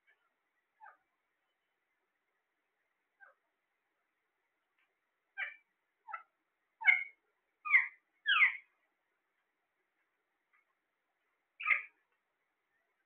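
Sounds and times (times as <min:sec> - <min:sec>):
parakeets squawking: 0:11.6 - 0:11.9.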